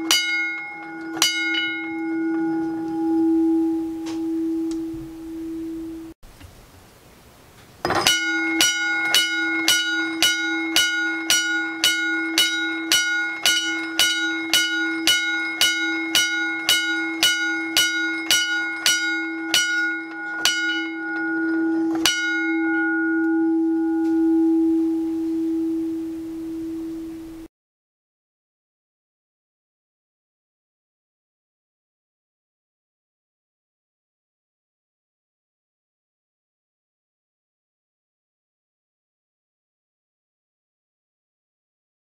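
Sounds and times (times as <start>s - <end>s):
motorized crossing bell ringing: 0.0s - 5.0s, 7.9s - 26.0s.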